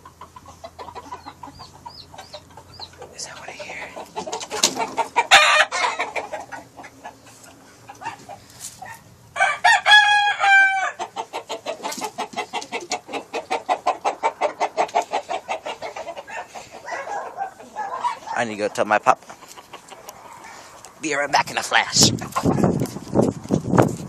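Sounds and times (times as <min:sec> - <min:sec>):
rooster crowing: 0:05.3 - 0:06.2, 0:08.9 - 0:11.1.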